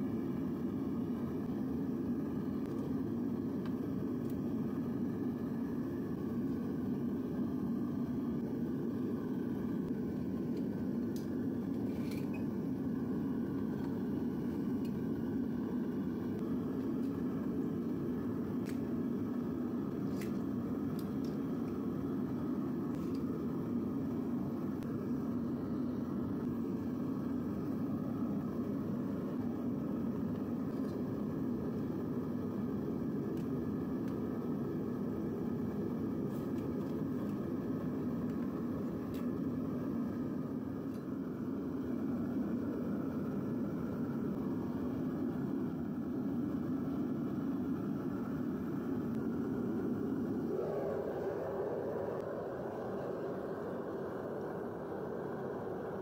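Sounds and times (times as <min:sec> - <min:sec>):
propane burner roaring: 0:00.0 - 0:56.0.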